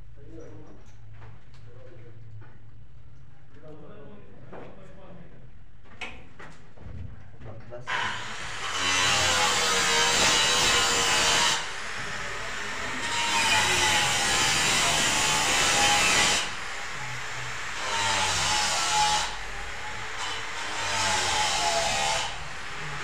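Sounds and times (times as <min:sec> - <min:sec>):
tool grating into plaster: 0:07.9 - 0:23.0.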